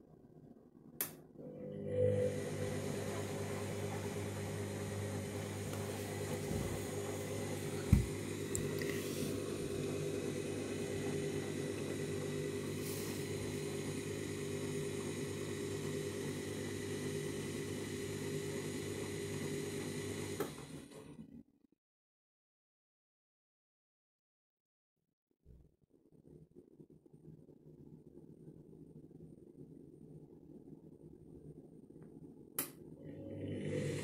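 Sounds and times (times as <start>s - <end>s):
washing machine motor hum: 1.0s - 21.4s, 27.7s - 34.0s
knock in washing machine: 7.8s - 8.2s.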